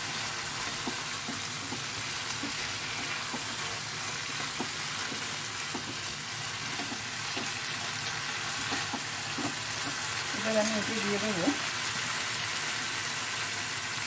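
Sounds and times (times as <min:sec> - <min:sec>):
spatula stirring: 0:00.0 - 0:11.2
paste sizzling in oil: 0:00.0 - 0:14.0.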